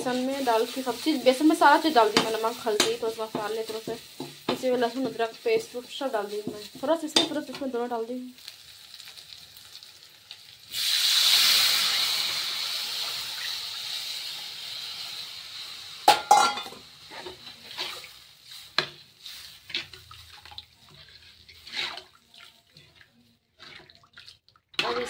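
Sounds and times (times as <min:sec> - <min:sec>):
batter hissing in hot pan: 0:00.0 - 0:06.9, 0:08.2 - 0:16.2, 0:16.8 - 0:20.2.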